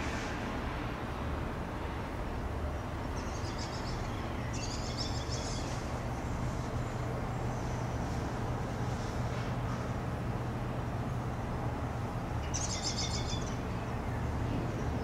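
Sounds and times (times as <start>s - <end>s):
low hum and rumble: 0.0s - 15.0s
birds chirping: 3.1s - 7.9s, 12.4s - 15.0s.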